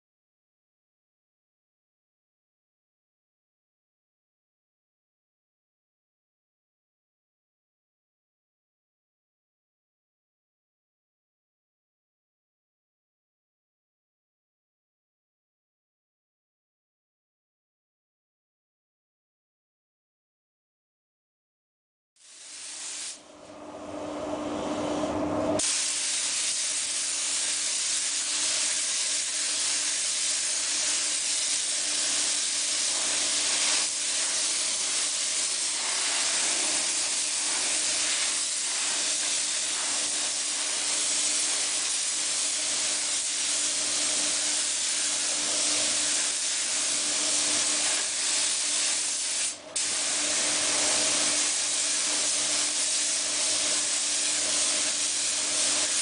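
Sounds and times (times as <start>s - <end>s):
paint spray gun hissing: 22.2s - 23.2s, 25.6s - 56.0s.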